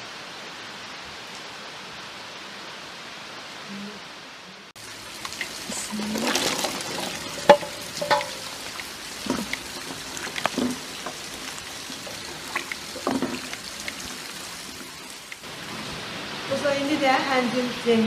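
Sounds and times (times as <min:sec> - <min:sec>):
rain hissing: 0:00.0 - 0:18.0
metal kitchenware clinking: 0:07.2 - 0:08.5.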